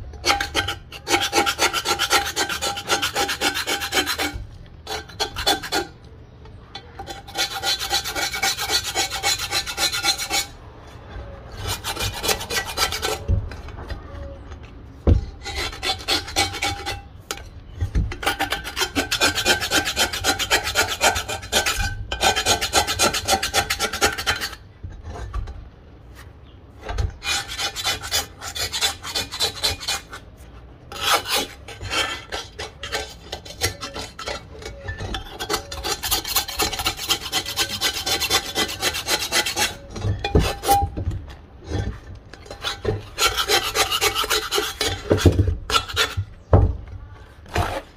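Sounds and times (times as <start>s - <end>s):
knife scraping cast iron: 0.0s - 46.6s, 47.4s - 47.9s.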